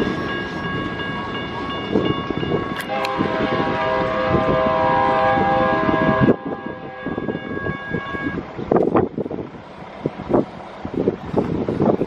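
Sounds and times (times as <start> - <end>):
crossing warning bell: 0.0 - 8.6
passing train noise: 0.0 - 12.0
locomotive horn chord: 2.8 - 8.4.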